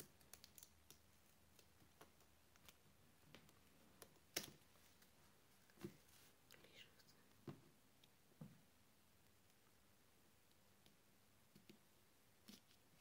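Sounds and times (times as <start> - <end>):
faint clicks and taps on tabletop: 0.0 - 8.6, 10.4 - 12.8.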